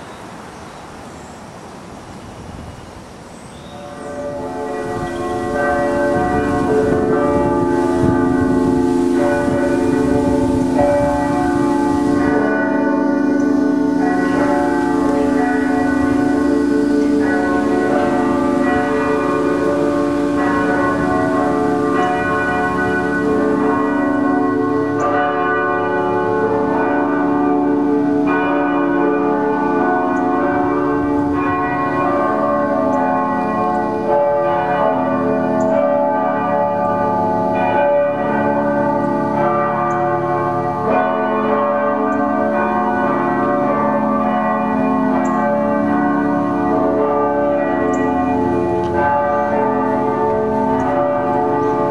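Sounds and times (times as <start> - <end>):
church bells ringing: 3.5 - 51.9.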